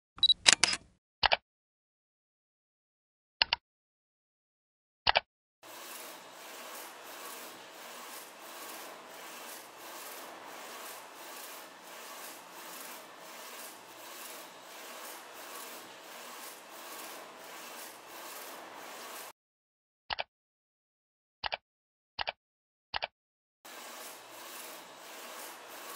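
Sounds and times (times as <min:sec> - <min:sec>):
printer carriage swishing hiss: 0:05.6 - 0:19.3, 0:23.7 - 0:25.9.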